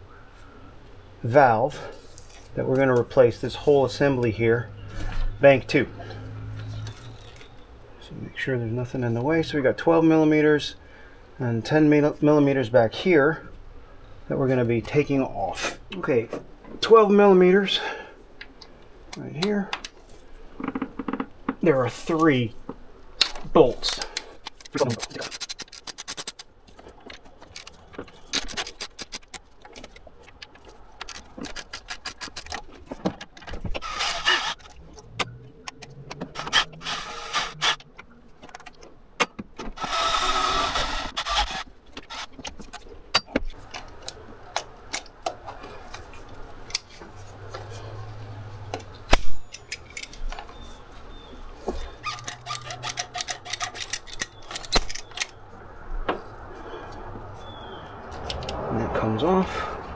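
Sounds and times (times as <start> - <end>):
cordless drill running: 36.4 - 37.8, 39.8 - 42.3
hand tools clinking on bolts: 51.8 - 55.4.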